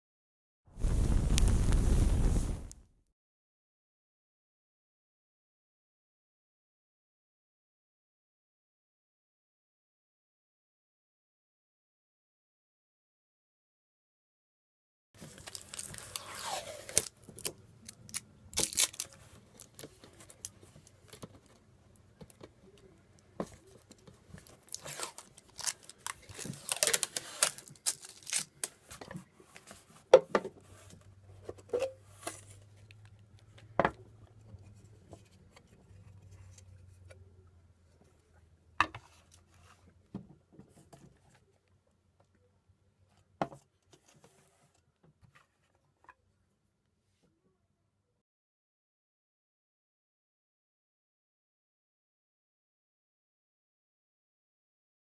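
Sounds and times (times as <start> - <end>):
packaging tearing and rustling: 15.2 - 20.6, 24.3 - 28.8.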